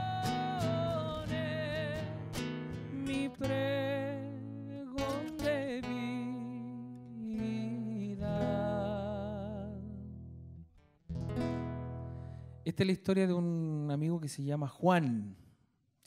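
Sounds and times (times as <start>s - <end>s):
man singing: 0.0s - 10.0s
strummed acoustic guitar: 0.0s - 12.7s.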